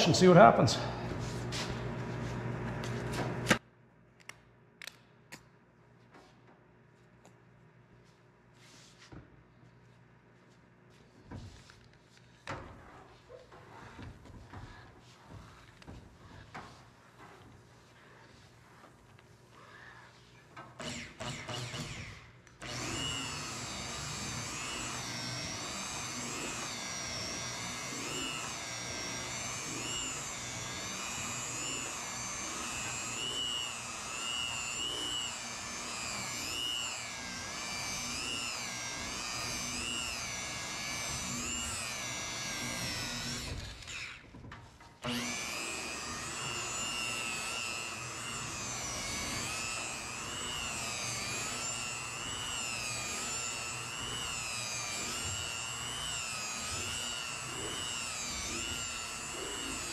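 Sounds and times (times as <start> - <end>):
polisher motor whine: 22.6 - 44.2, 45.0 - 59.9.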